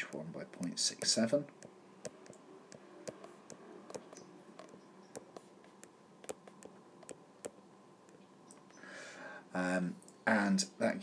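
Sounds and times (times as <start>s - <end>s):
stylus tapping on glass screen: 1.0s - 8.2s.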